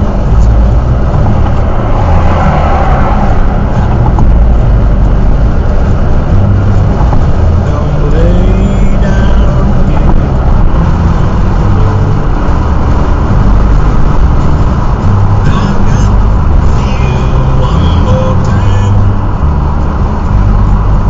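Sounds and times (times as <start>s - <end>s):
road and engine rumble in car: 0.0s - 21.0s.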